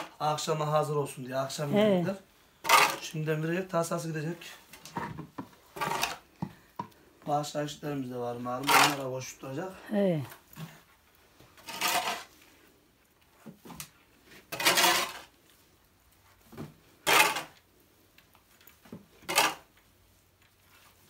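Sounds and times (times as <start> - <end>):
loud scraping clattering noises: 2.6 - 3.2, 4.7 - 6.3, 8.6 - 9.3, 11.5 - 12.5, 14.2 - 15.4, 16.9 - 17.6, 19.2 - 19.7.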